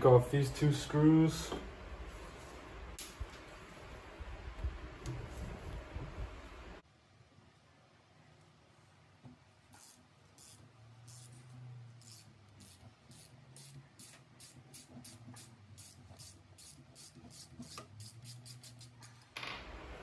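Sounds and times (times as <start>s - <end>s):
hand ratchet clicking: 9.8s - 11.4s, 12.0s - 19.2s.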